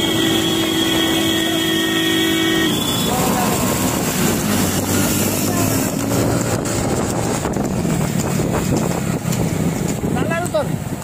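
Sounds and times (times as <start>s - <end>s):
motorcycle engine running: 0.0s - 11.0s
wind buffeting on microphone: 3.0s - 11.0s.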